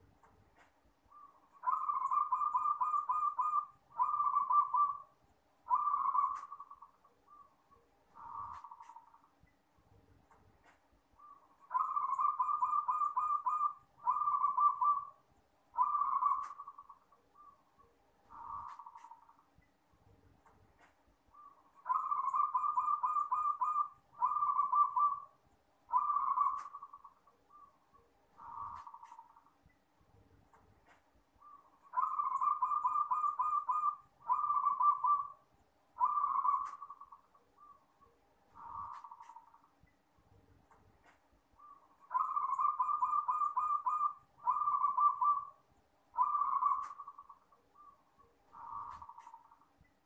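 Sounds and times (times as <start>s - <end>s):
dove cooing: 1.1s - 5.1s, 5.7s - 7.5s, 11.2s - 15.2s, 15.8s - 17.6s, 21.4s - 25.3s, 25.9s - 27.7s, 31.4s - 35.4s, 36.0s - 37.8s, 41.6s - 45.6s, 46.2s - 49.5s.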